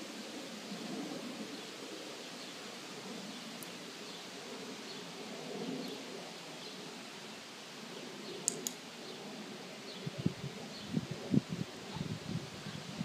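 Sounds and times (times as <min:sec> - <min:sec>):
outdoor background hiss: 0:00.0 - 0:13.0
sharp clicks: 0:08.4 - 0:08.8.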